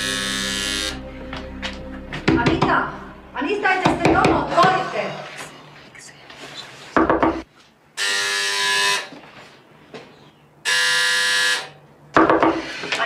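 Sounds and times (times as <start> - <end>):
electric doorbell buzzer: 0.0 - 1.0, 8.0 - 9.1, 10.6 - 11.8.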